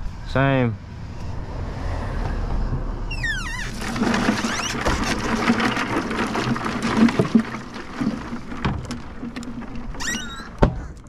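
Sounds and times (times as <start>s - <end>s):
water sloshing in cooler: 3.5s - 11.0s
ice rattling: 3.6s - 11.0s
plastic bottles clicking: 3.7s - 11.0s.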